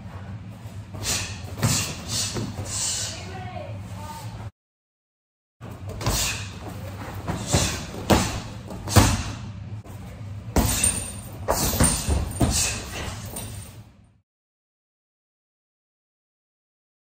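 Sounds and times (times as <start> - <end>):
punches thudding on dummy: 7.2 - 9.4.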